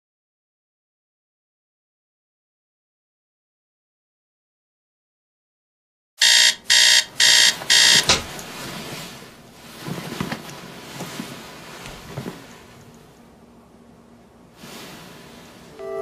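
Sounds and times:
alarm clock beeping: 6.2 - 8.4
soft rustling: 8.4 - 13.2.

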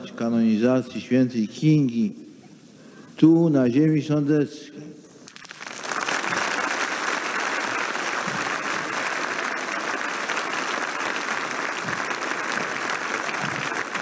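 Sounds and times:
large crowd clapping: 5.3 - 14.0.

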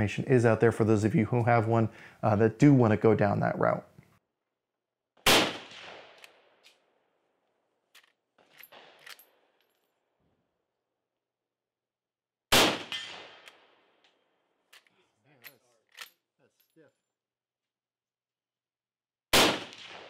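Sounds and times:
gunshot echo: 5.2 - 6.2, 12.5 - 13.7, 19.3 - 20.0
loud rifle shot: 5.2 - 6.4, 12.5 - 13.7, 19.3 - 20.0
rifle action metallic clicks: 7.9 - 9.8, 12.9 - 16.2.

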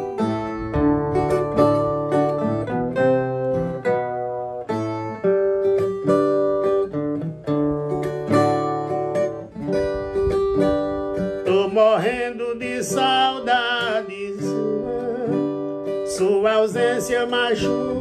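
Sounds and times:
resonator guitar playing: 0.0 - 18.0
man singing: 11.4 - 18.0.

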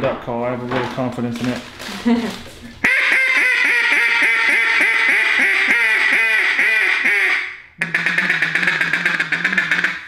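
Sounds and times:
duck call quacking: 2.8 - 10.0.

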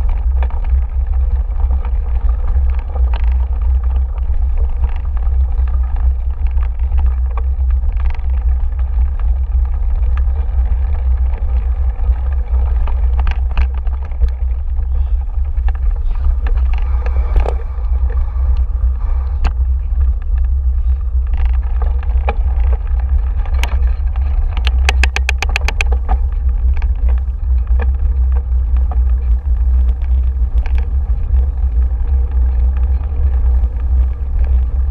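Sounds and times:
bike knocking and rattling: 0.0 - 34.9
rapid clicks: 0.0 - 34.9
wind buffeting microphone: 0.0 - 34.9.

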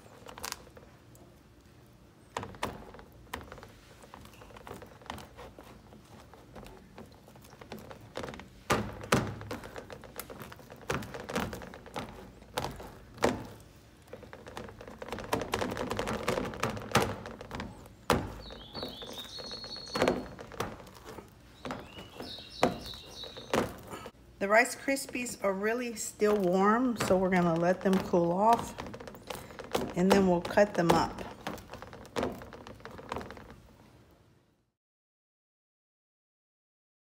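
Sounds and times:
hands pressing sticky cereal bars: 2.3 - 24.1, 26.2 - 33.6.

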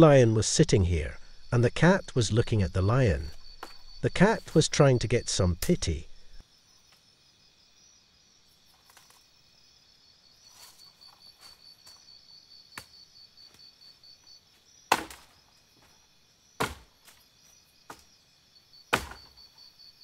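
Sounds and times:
sharp knocks: 14.9 - 15.4, 16.6 - 16.9, 18.9 - 19.4.

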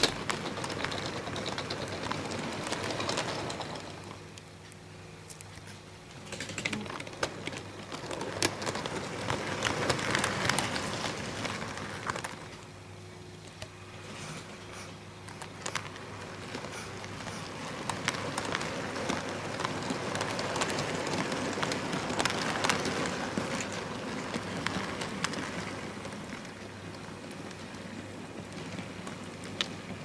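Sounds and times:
wheel clicks on rail: 0.0 - 4.5, 6.1 - 12.7, 14.9 - 30.0
model train wheels rumbling on rail: 0.0 - 4.7, 6.0 - 30.0.

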